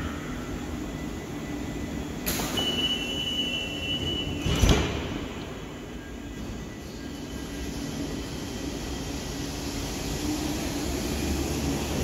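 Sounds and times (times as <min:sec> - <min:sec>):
high warning beep: 0:02.4 - 0:04.5.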